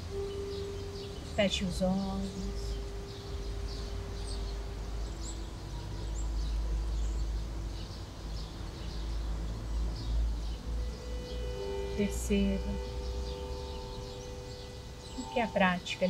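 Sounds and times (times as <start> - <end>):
hand-held wind instrument notes: 0.0 - 7.0, 10.6 - 16.0
birds chirping: 0.0 - 16.0
low outdoor background noise: 0.0 - 16.0.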